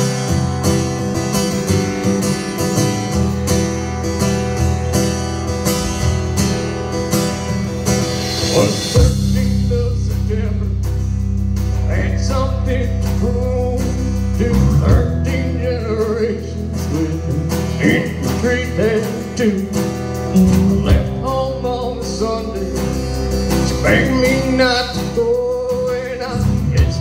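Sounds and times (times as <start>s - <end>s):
live rock band playing: 0.0s - 27.0s
man singing lead: 8.3s - 11.2s, 11.8s - 27.0s.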